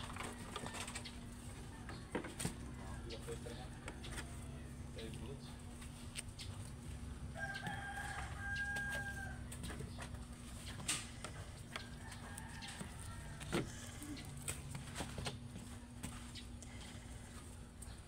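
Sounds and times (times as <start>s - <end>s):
rooster crowing: 0.0s - 4.9s, 7.3s - 9.7s, 11.7s - 14.4s.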